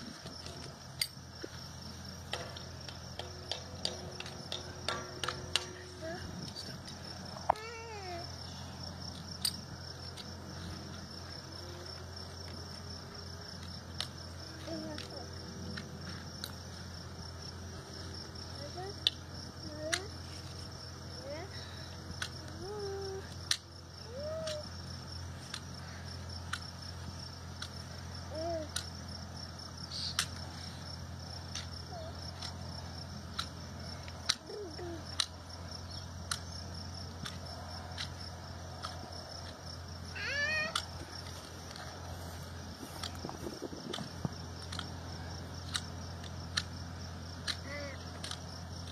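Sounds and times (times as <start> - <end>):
high insect chirring: 0.0 - 48.9
hoof trimming tools clicking: 2.2 - 7.7, 18.9 - 20.1, 22.0 - 28.0, 28.6 - 29.0, 29.9 - 39.9, 40.6 - 48.9.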